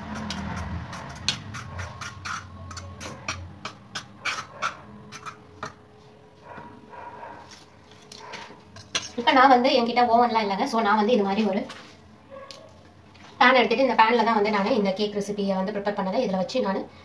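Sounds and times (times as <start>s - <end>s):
pastry brush tapping bowl: 0.0s - 5.8s.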